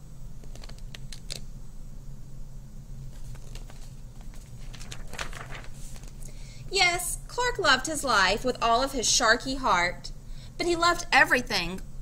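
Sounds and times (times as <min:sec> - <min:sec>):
low electrical hum: 0:00.0 - 0:12.0
picture book handled: 0:03.1 - 0:06.3.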